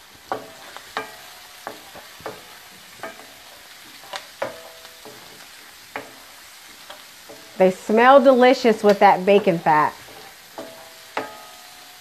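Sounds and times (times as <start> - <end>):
onions sizzling in fat: 0.0 - 12.0
spatula knocking on metal pan: 0.3 - 7.6, 9.4 - 11.6.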